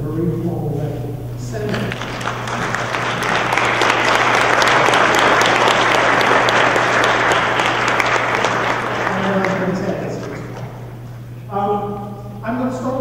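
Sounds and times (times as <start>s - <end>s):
audience applauding: 1.7s - 11.0s.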